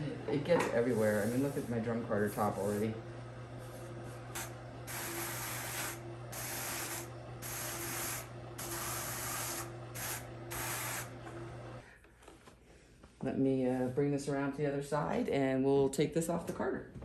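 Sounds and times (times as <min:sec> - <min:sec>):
motor humming: 0:00.0 - 0:11.8
rough brushing strokes: 0:00.6 - 0:02.9.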